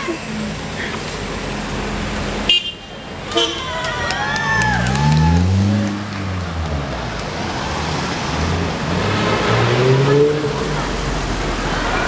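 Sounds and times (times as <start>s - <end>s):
cars driving past: 0.0s - 12.0s
traffic noise: 0.0s - 12.0s
engine revving: 7.5s - 11.9s.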